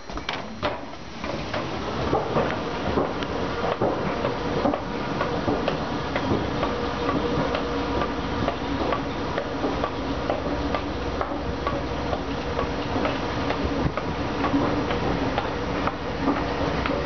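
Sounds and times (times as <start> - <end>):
escalator humming: 0.0 - 17.0
escalator ticking clicks: 5.2 - 17.0.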